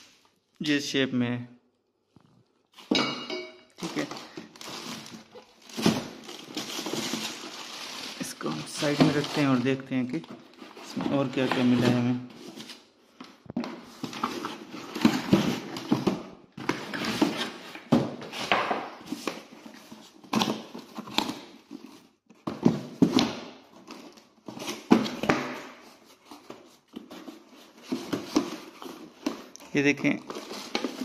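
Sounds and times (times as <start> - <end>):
plastic crinkling: 3.8 - 12.6
rummaging through cardboard box: 3.8 - 31.0.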